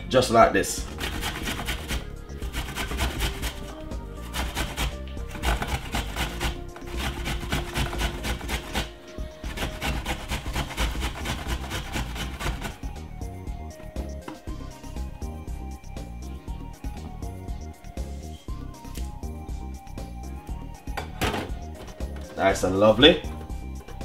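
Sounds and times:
ginger scraping on metal grater: 0.8 - 12.8.

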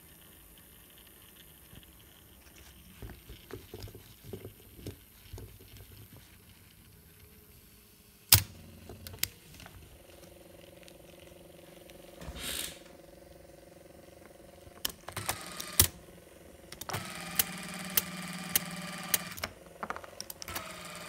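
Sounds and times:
tape drive motor hum: 8.3 - 21.0.

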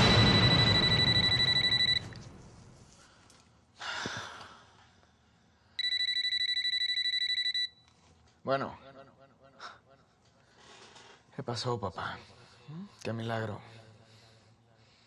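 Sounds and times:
mobile phone ringing: 0.0 - 2.2, 5.8 - 7.8.

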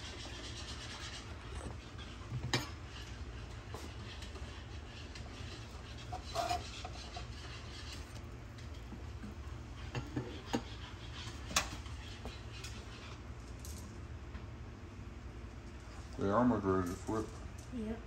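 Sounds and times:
utensil scraping frying pan: 0.0 - 13.2.

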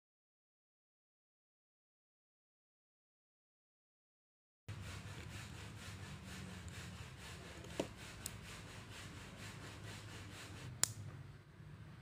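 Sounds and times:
screwdriver scraping on screw: 4.9 - 10.8.

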